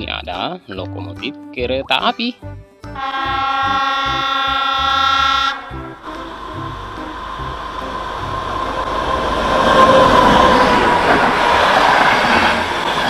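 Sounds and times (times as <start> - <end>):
passenger train passing: 3.0 - 13.0.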